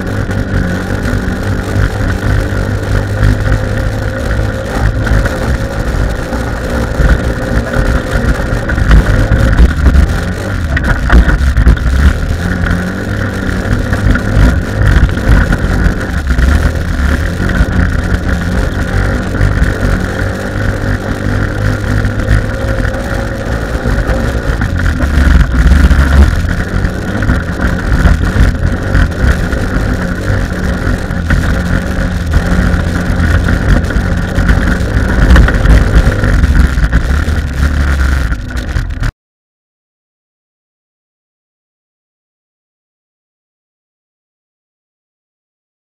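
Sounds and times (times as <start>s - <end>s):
buggy engine revving: 0.0s - 39.1s
chassis knocks and rattles: 4.6s - 39.1s.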